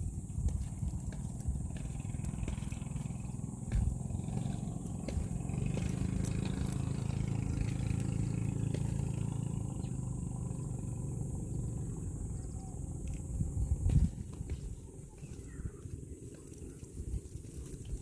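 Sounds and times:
footsteps down outdoor steps: 0:00.0 - 0:10.2, 0:13.0 - 0:18.0
low rumble: 0:00.0 - 0:16.2.

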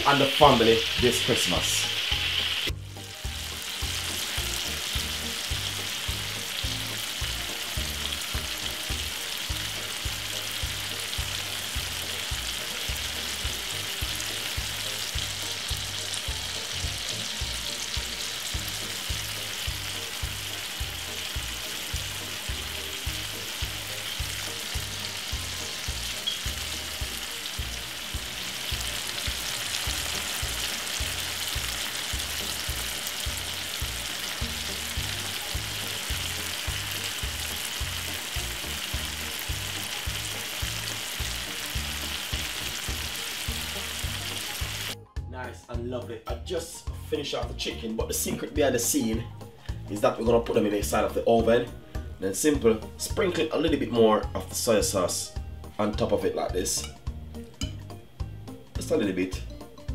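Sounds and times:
chicken sizzling in frying pan: 0:00.0 - 0:45.0.

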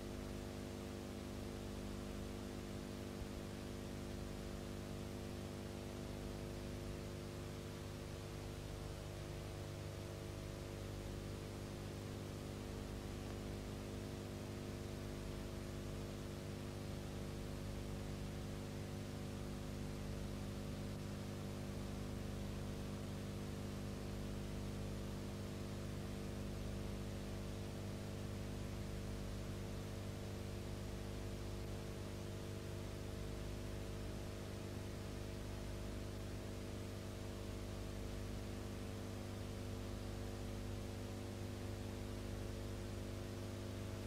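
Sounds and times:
electrical mains hum: 0:00.0 - 0:44.0.

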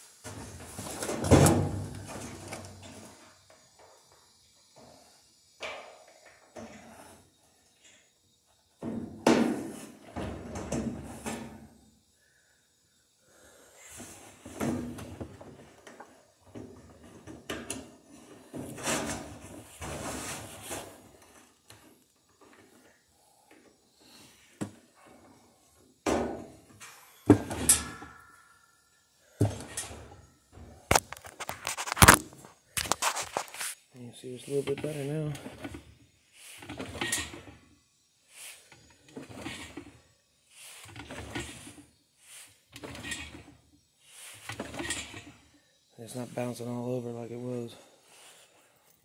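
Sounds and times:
washer parts clunking and rattling: 0:00.3 - 0:03.0, 0:08.8 - 0:11.7, 0:14.5 - 0:20.6, 0:27.3 - 0:28.3, 0:29.4 - 0:32.2, 0:36.6 - 0:37.6, 0:39.1 - 0:40.0, 0:40.9 - 0:41.8, 0:42.7 - 0:43.6, 0:44.5 - 0:45.4.

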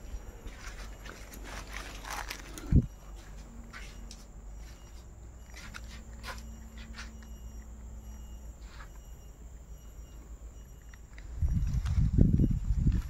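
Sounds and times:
low steady background hum: 0:00.0 - 0:13.0
footsteps crunching on dry leaves: 0:00.4 - 0:03.9.

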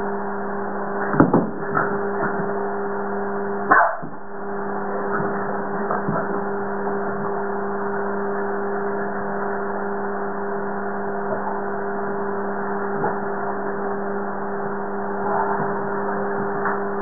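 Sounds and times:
steady electrical hum: 0:00.0 - 0:17.0.

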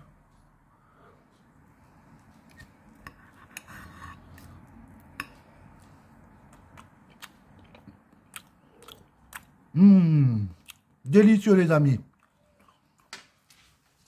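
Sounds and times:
knife scraping plate: 0:02.5 - 0:04.5.

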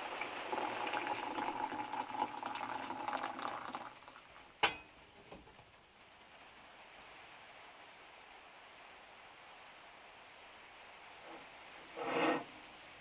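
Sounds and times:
water boiling in a kettle: 0:00.0 - 0:13.0.

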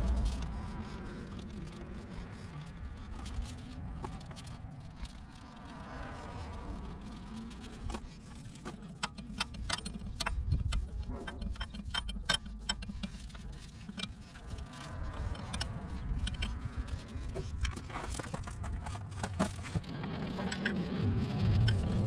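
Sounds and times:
steady low rumble: 0:00.0 - 0:22.0
metallic clicks and clinks: 0:06.8 - 0:18.2.

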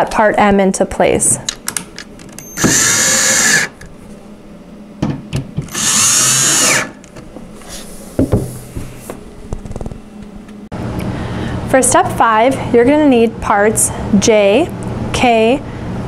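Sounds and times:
cordless drill driving screws: 0:02.4 - 0:03.8, 0:05.7 - 0:07.0.

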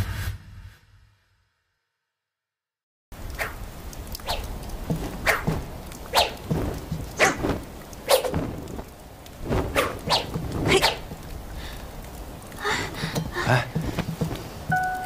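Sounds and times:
sword swishing through air: 0:05.0 - 0:08.8, 0:09.4 - 0:11.0.

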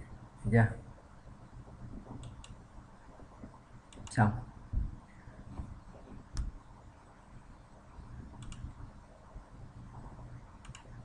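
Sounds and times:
faint low room hum: 0:00.0 - 0:11.0
computer mouse clicks: 0:02.1 - 0:02.6, 0:03.9 - 0:04.2, 0:08.3 - 0:08.8, 0:10.6 - 0:11.0.

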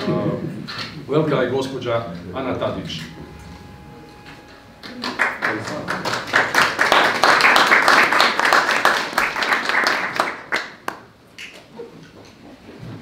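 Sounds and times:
small group applauding: 0:04.8 - 0:11.7.

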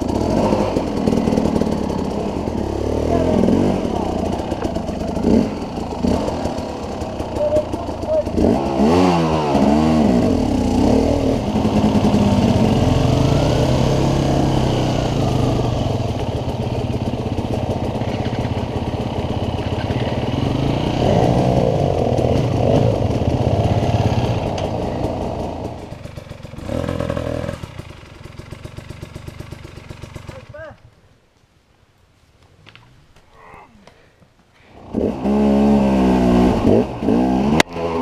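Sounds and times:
motorcycle engine revving: 0:00.0 - 0:30.8, 0:34.7 - 0:38.0.

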